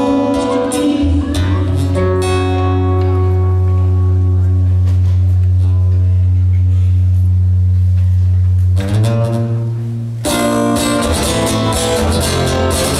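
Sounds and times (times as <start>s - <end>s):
amplified acoustic guitar music: 0.0s - 7.9s, 8.6s - 12.9s.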